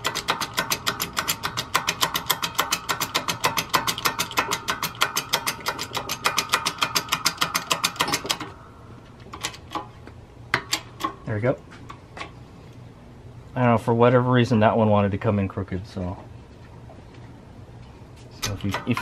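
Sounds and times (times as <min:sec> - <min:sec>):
rapid even clicking: 0:00.0 - 0:08.5, 0:18.4 - 0:19.0.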